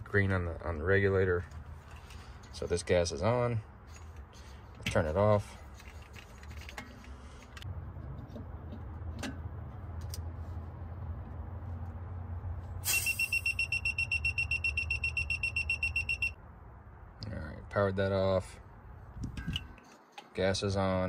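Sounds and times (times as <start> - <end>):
high-pitched alarm beeps: 12.9 - 16.4.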